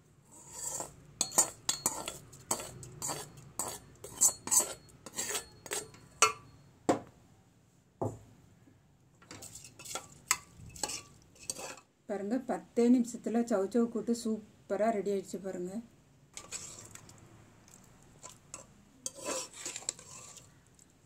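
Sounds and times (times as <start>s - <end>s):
metal spoon clinking against pan: 0.8s - 6.6s, 18.5s - 20.4s.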